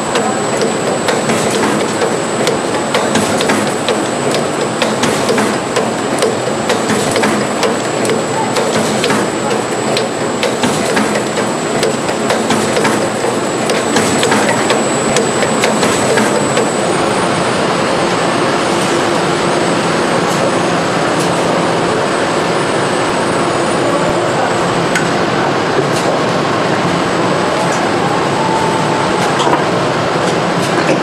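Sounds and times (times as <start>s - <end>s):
factory machinery noise: 0.0s - 31.0s
sharp clicks and ticks: 0.6s - 16.7s.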